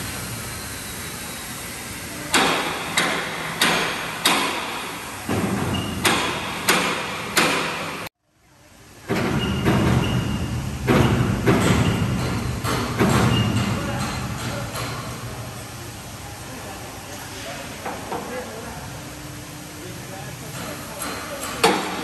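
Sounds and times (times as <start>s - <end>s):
workshop machinery hum: 0.0s - 22.0s
sharp metallic bangs: 2.3s - 8.1s.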